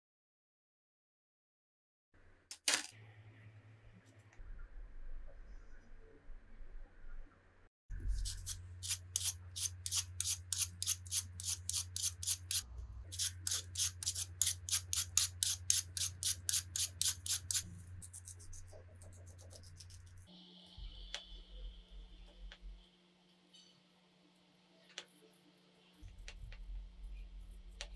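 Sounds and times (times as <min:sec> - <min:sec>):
vegetable peeler scraping potato: 0:08.2 - 0:20.3.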